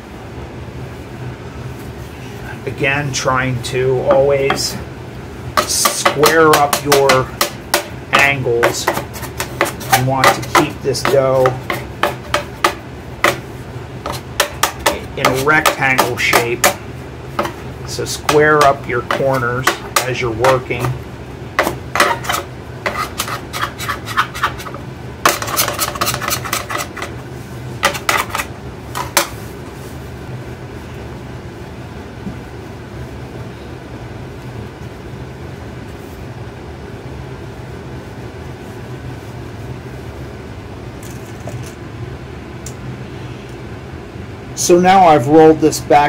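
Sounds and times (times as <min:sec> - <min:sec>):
steady low hum: 0:00.0 - 0:46.0
metal scraper tapping: 0:04.1 - 0:04.8, 0:05.6 - 0:13.4, 0:14.0 - 0:16.8, 0:17.4 - 0:21.0, 0:21.6 - 0:27.1, 0:27.8 - 0:29.3.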